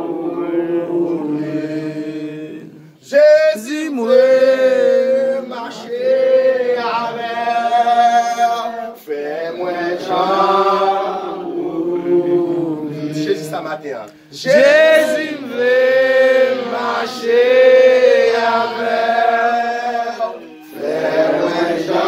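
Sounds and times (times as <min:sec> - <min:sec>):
congregation singing a hymn: 0:00.0 - 0:22.0
man's voice leading singing: 0:03.0 - 0:09.2.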